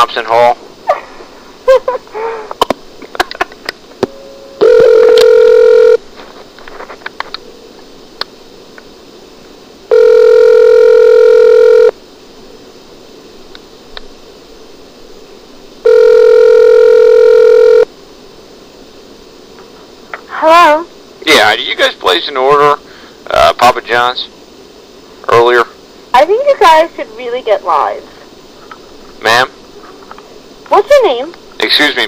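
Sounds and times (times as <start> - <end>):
phone line clicks: 4.0 - 6.0
telephone ringback tone: 4.1 - 6.0, 9.9 - 11.9, 15.8 - 17.9.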